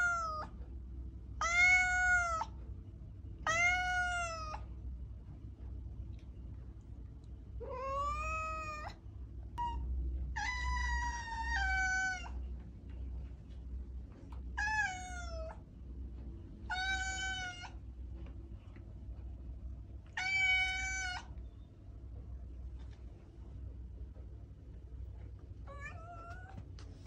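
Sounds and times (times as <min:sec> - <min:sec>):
cat meowing: 0:00.0 - 0:00.5, 0:01.4 - 0:02.6, 0:03.4 - 0:04.6, 0:07.6 - 0:09.0, 0:09.6 - 0:12.4, 0:14.6 - 0:15.6, 0:16.7 - 0:17.8, 0:20.1 - 0:21.3, 0:25.7 - 0:26.6.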